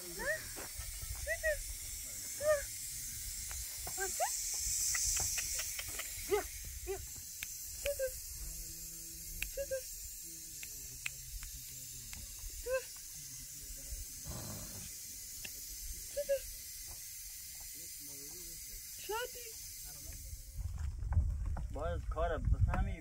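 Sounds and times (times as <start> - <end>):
steady hiss: 0.0 - 20.8.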